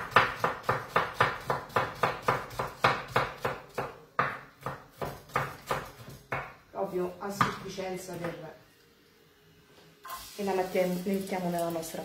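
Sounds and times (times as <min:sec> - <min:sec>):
knife chopping on wooden board: 0:00.0 - 0:06.5.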